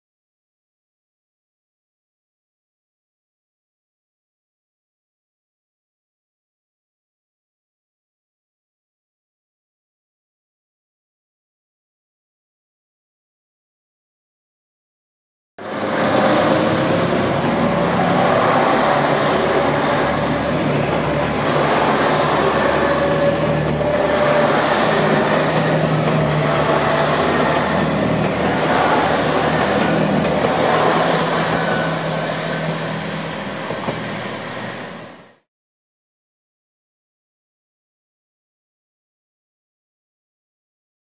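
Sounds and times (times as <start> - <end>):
diesel train engines under power: 15.6 - 35.4
train cars rolling on rails: 15.6 - 35.4.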